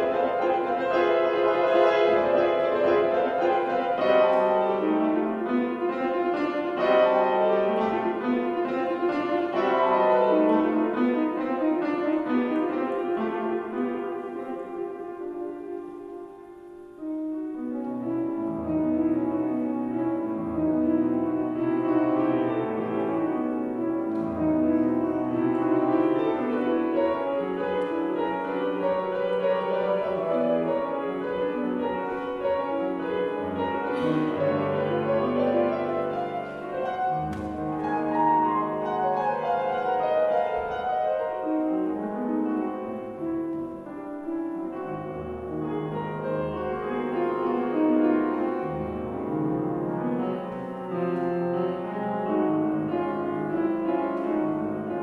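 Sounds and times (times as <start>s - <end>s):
classical piano piece: 0.0s - 55.0s.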